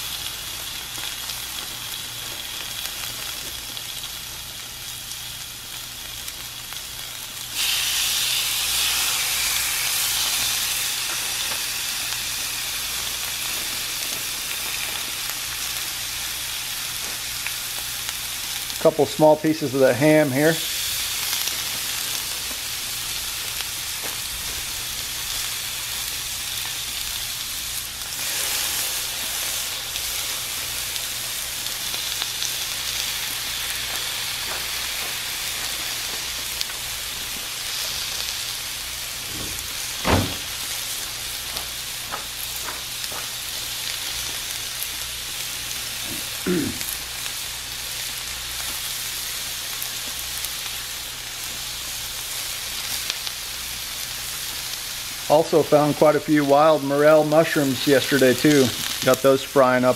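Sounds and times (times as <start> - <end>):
meat sizzling on griddle: 0.0 - 59.9
short thump: 39.3 - 40.5.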